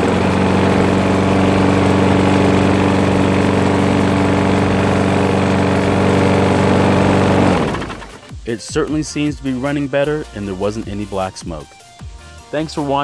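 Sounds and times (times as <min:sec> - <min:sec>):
lawn mower engine running: 0:00.0 - 0:08.4.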